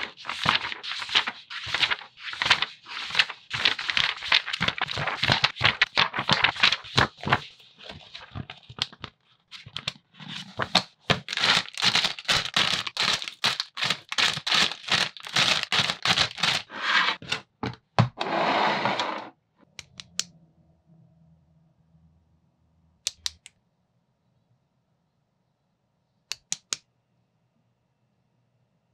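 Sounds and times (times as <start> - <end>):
plastic packaging crinkling: 0.0 - 16.7.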